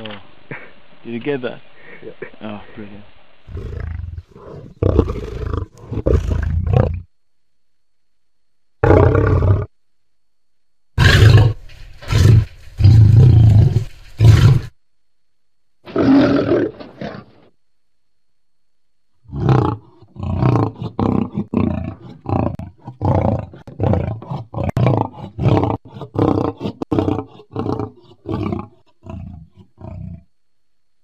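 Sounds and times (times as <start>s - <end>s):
lion roaring: 3.5s - 7.1s, 8.8s - 9.7s, 11.0s - 14.7s, 15.9s - 17.5s, 19.2s - 30.3s.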